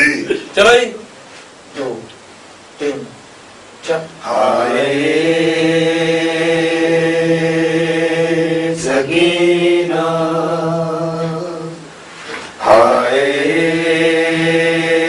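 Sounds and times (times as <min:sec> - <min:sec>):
wordless chant-like vocal drone: 0:02.8 - 0:03.2, 0:03.8 - 0:15.0.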